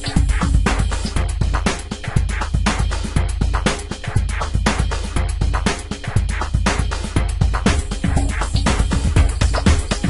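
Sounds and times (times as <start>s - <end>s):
electronic music with drum machine: 0.0s - 10.0s
heavy bass: 0.0s - 10.0s.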